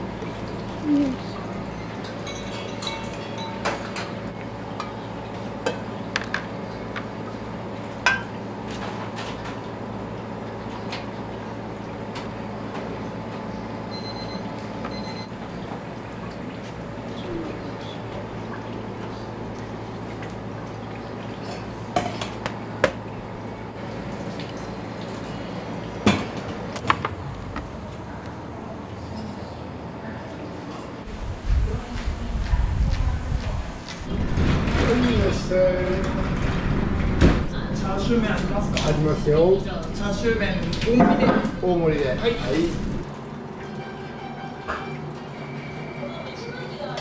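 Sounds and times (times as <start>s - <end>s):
steady low hum: 0.0s - 46.8s
dishes and utensils clinking: 1.7s - 5.0s.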